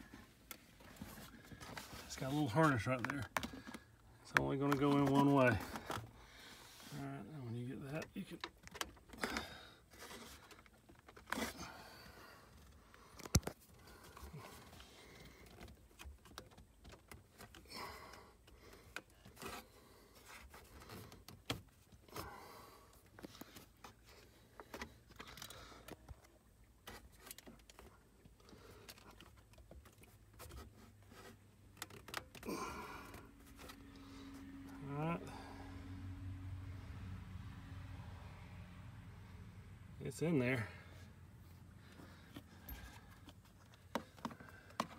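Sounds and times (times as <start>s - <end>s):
scraping and rustling in plastic panel: 8.4s - 17.7s.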